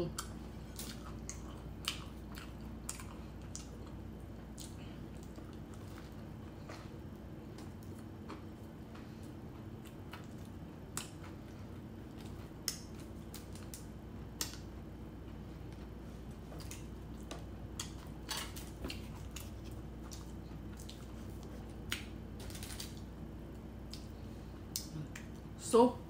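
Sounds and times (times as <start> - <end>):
low steady hum: 0.0 - 26.0
chewing clicks and smacks: 0.2 - 6.9, 9.6 - 11.4, 12.1 - 14.7, 16.6 - 23.1, 23.8 - 24.1, 24.7 - 25.4.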